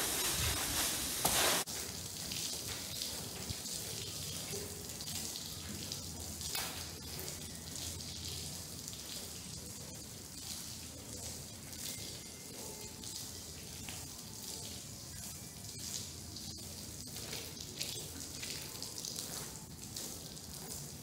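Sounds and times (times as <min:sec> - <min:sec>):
push broom scrubbing: 0:00.0 - 0:01.7
water spraying onto rug: 0:00.0 - 0:04.0, 0:16.8 - 0:21.0.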